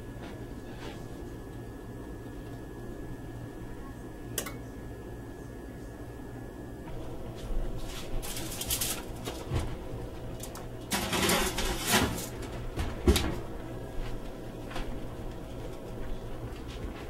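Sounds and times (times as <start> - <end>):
oven door opening: 10.5 - 13.5
oven door shutting: 10.5 - 13.5
dish scraping onto rack: 10.9 - 12.4.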